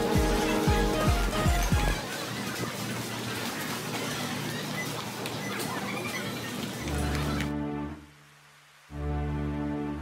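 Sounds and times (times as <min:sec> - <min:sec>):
busy store noise: 0:00.0 - 0:07.6
background music low sustained notes: 0:06.9 - 0:10.0.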